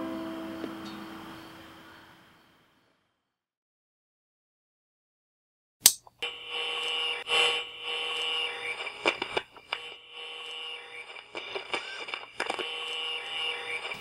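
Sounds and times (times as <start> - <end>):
crackles and clicks: 5.9 - 14.0
radio static hiss: 6.2 - 14.0.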